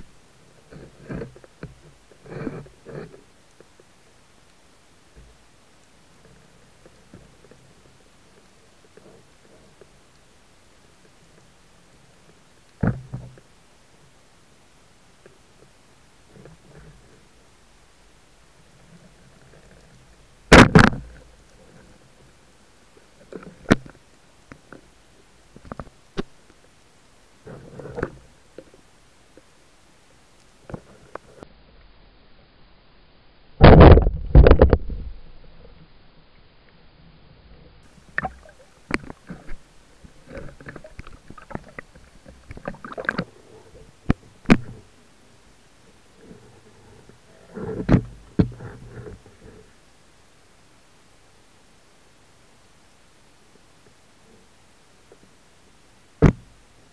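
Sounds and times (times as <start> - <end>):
water splashing and sloshing: 37.9 - 44.9.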